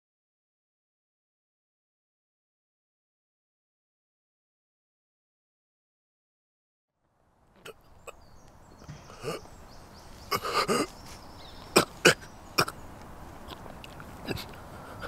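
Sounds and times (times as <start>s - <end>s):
man coughing sharply: 10.3s - 11.0s
man straining for breath: 14.2s - 15.0s.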